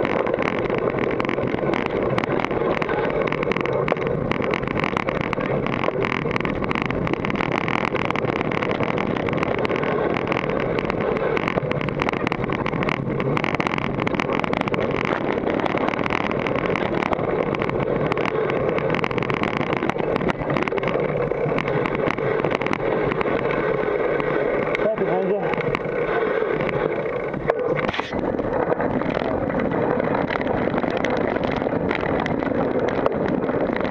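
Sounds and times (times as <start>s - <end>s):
bike parts rattling and knocking: 0.0s - 33.9s
tyre noise: 0.0s - 33.9s.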